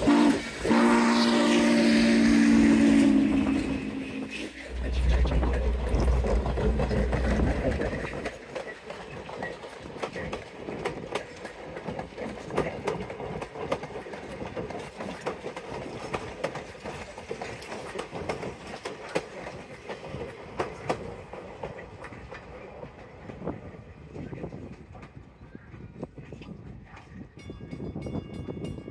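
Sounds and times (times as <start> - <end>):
train rumble: 0.0 - 28.9
train wheels clacking on rail joints: 2.6 - 23.7.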